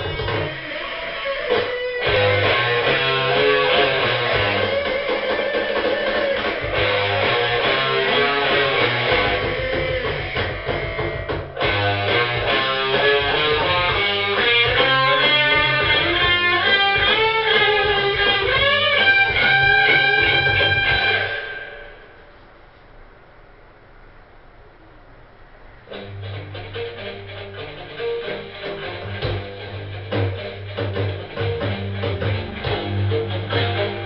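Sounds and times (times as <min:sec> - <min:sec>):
low bass notes: 0:00.0 - 0:00.7, 0:28.6 - 0:34.0
electric guitar lead line: 0:00.0 - 0:22.4, 0:25.7 - 0:34.0.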